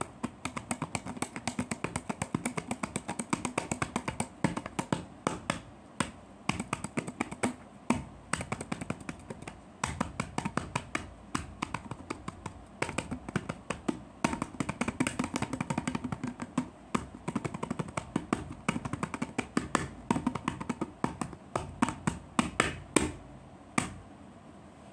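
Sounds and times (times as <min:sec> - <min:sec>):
hands drumming on a can: 0:00.0 - 0:23.2, 0:23.8 - 0:24.0.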